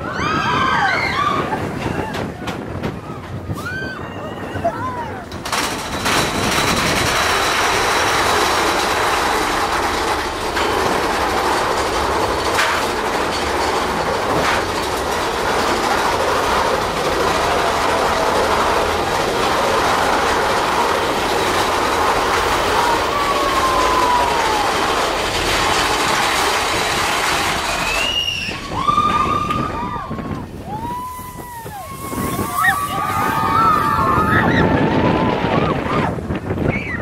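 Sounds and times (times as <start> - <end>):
roller coaster cars rattling: 0.0 - 37.0
falling squeal: 27.6 - 34.8.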